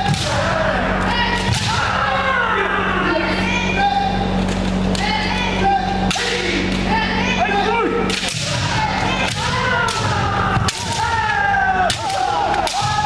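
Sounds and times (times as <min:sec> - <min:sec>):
people shouting: 0:00.0 - 0:04.3, 0:04.9 - 0:13.0.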